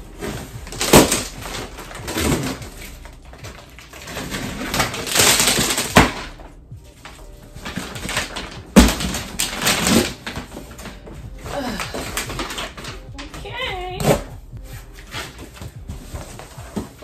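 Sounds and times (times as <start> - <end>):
cardboard flaps scraping and rustling: 14.0 - 17.0.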